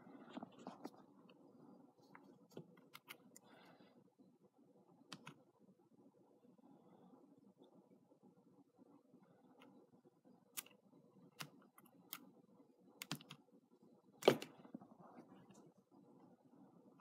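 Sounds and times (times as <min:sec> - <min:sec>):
faint hum: 0:00.0 - 0:17.0
computer clicks and taps: 0:13.0 - 0:13.4.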